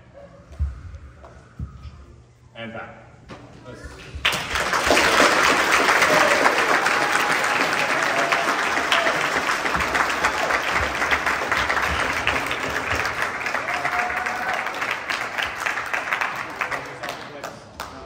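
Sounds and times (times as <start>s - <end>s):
audience applauding: 4.2s - 18.0s.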